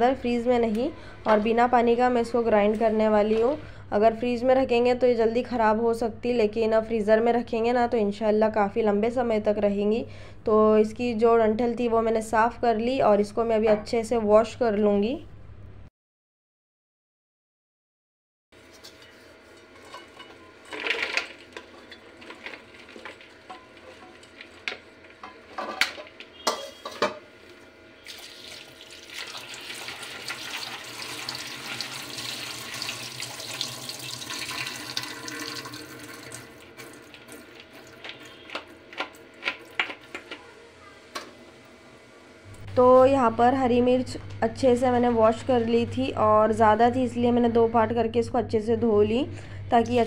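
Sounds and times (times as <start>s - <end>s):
tap water running into plastic bowl: 28.1s - 40.4s.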